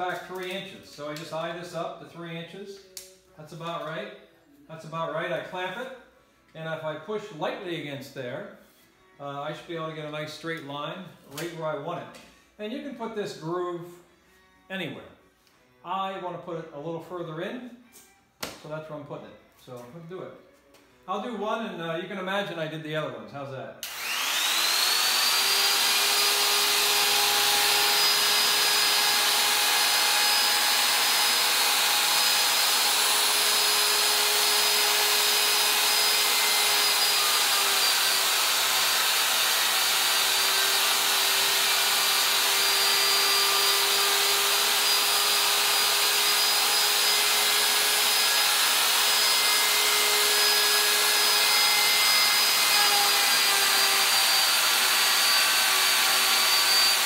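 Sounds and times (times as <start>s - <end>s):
router cutting plastic: 23.8s - 57.0s.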